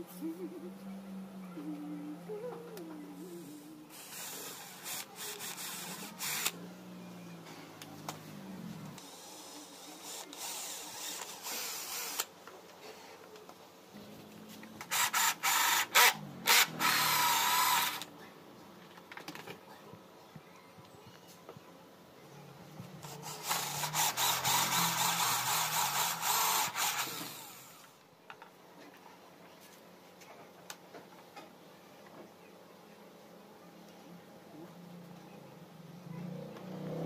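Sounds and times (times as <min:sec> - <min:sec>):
cordless drill boring: 0:03.9 - 0:06.6, 0:10.0 - 0:12.3, 0:14.9 - 0:18.1, 0:23.0 - 0:27.9.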